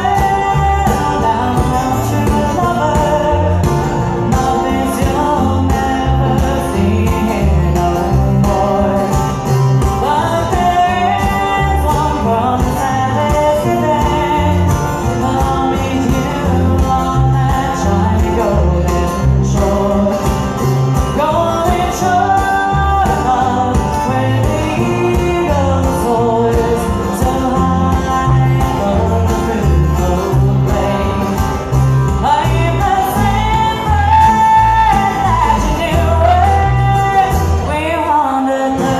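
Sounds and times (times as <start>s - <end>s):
bluegrass band playing: 0.0s - 38.9s
person singing: 0.0s - 38.9s
upright bass: 0.0s - 38.9s.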